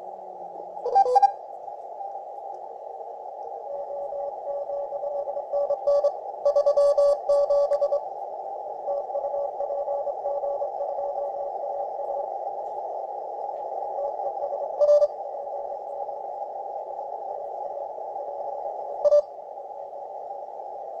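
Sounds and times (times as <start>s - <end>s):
radio band noise hiss: 0.0s - 21.0s
faint morse code beeps: 0.9s - 1.4s, 4.0s - 8.0s, 14.8s - 15.2s, 19.0s - 19.3s.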